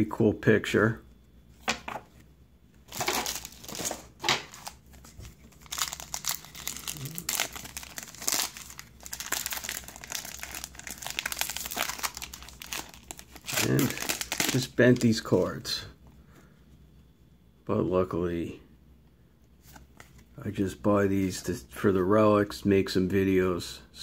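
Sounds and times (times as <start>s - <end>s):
card pack wrapper crinkling: 2.9s - 15.2s.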